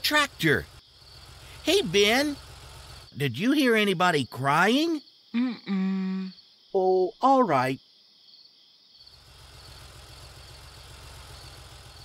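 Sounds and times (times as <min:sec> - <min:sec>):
cartoon car engine running: 0:00.0 - 0:04.7, 0:09.2 - 0:12.0
crickets chirping: 0:00.0 - 0:12.0.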